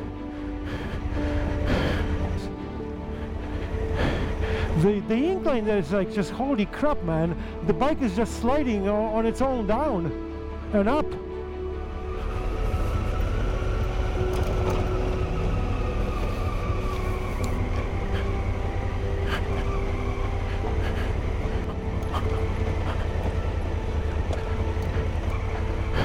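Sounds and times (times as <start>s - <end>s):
motorcycle engine rumbling: 11.8s - 26.0s
stones clicking under tyres: 21.6s - 26.0s.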